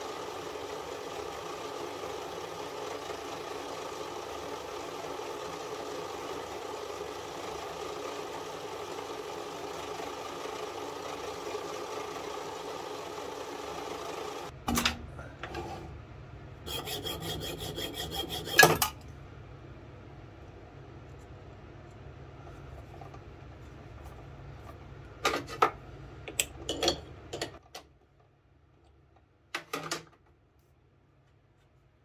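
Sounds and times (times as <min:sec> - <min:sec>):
bench lathe running: 0:00.0 - 0:14.5, 0:16.7 - 0:19.0
file rasping on steel: 0:16.7 - 0:19.0.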